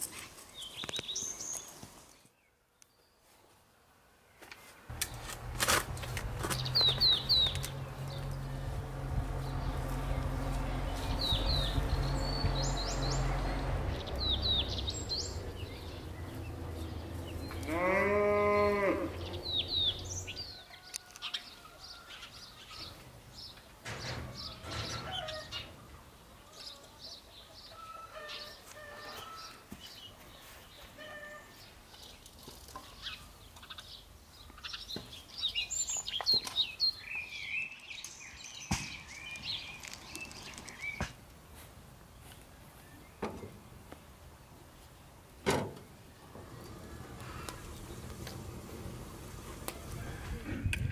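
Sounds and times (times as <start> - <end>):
small birds chirping: 0.0 - 3.4, 6.3 - 27.8, 28.4 - 45.2, 46.5 - 50.8
bleat: 17.6 - 19.2.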